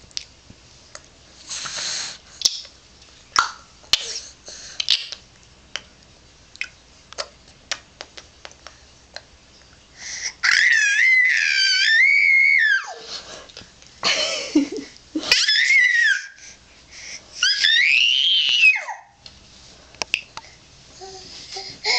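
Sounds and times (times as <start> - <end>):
baby breathy shriek: 15.3 - 16.6, 17.4 - 19.2.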